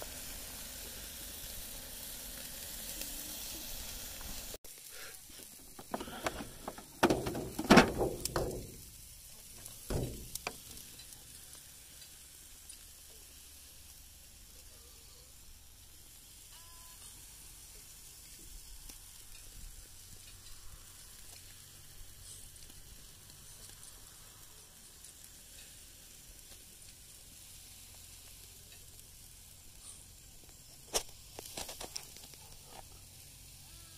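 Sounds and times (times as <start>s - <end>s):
food sizzling on a grill: 0.0s - 33.9s
loud knocks and clatter: 6.0s - 8.8s, 9.9s - 10.6s.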